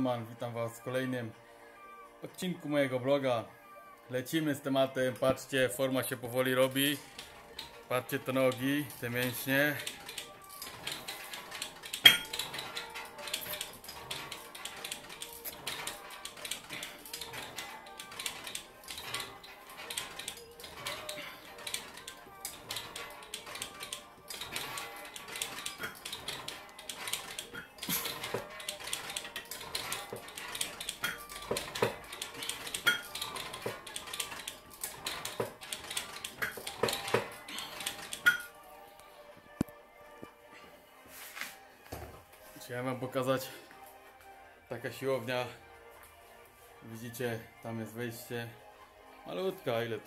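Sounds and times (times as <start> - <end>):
metallic clicks and clinks: 6.8 - 38.5.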